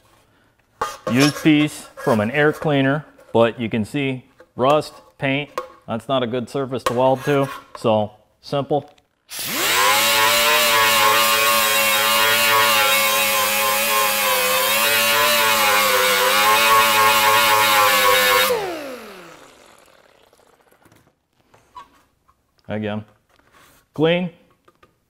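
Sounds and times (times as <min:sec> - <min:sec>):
die grinder whining on metal: 0:09.3 - 0:20.8.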